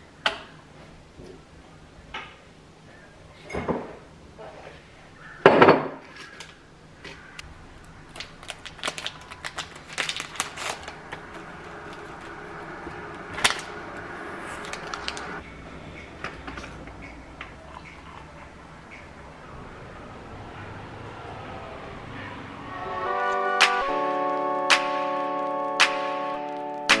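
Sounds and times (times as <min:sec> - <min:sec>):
tea bag clicks and rustles: 0:07.8 - 0:15.4.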